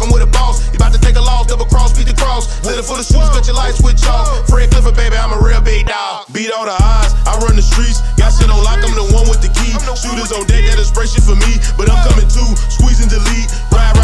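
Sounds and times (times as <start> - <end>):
fast ticking hi-hats: 0.0 - 5.8, 6.8 - 14.0
rapping over a beat: 0.0 - 14.0
deep bass hits: 6.8 - 14.0.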